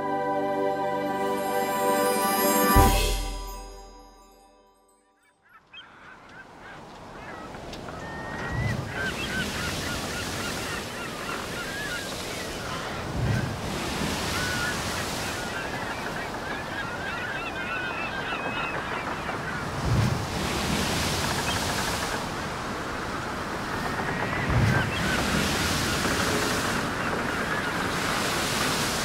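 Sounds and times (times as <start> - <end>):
birds calling: 5.4 - 13.2, 14.2 - 19.8, 23.3 - 28.7
surf washing in and out: 6.9 - 29.0.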